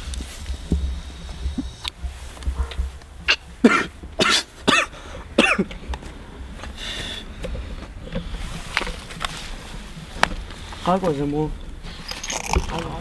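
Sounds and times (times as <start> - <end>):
man coughing: 3.6 - 5.7.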